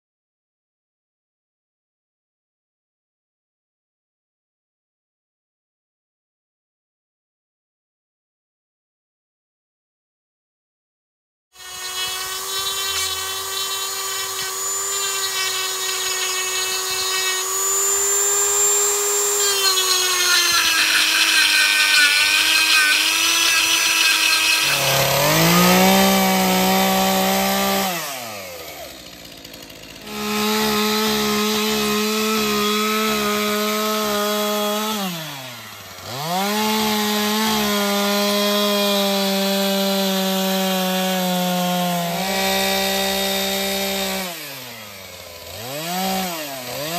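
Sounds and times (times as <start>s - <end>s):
chainsaw cutting wood: 11.6s - 46.9s
rotary tool whining carving wood: 11.6s - 46.9s.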